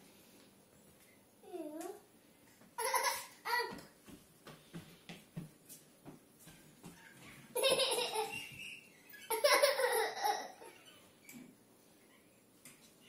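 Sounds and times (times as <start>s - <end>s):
toddler laughing: 2.8s - 3.8s, 7.6s - 8.6s, 9.2s - 10.9s.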